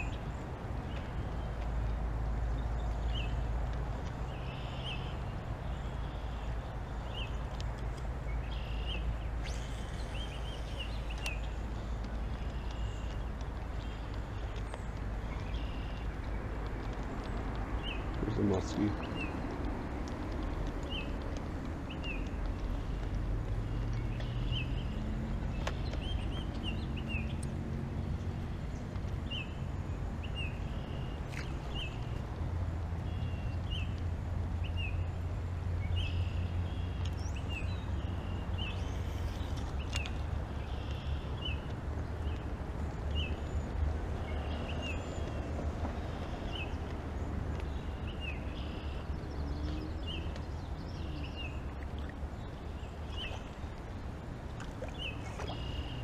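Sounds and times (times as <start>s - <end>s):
bird chirping: 4.2s - 16.5s, 54.9s - 56.0s.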